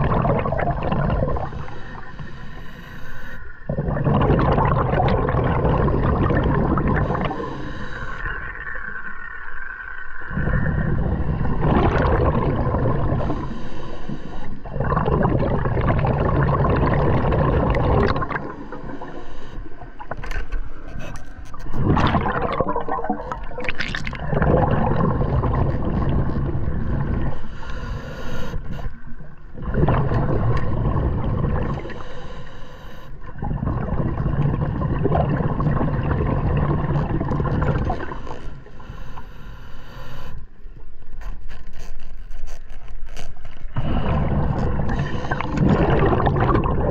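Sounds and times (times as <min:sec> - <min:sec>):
gurgling exhaled bubbles: 0:00.0 - 0:02.4, 0:03.6 - 0:13.6, 0:14.2 - 0:32.1, 0:33.2 - 0:39.2, 0:42.8 - 0:46.9
regulator inhalation hiss: 0:01.4 - 0:03.5, 0:07.1 - 0:08.3, 0:13.2 - 0:14.6, 0:27.4 - 0:29.0, 0:31.8 - 0:33.2, 0:38.1 - 0:40.4.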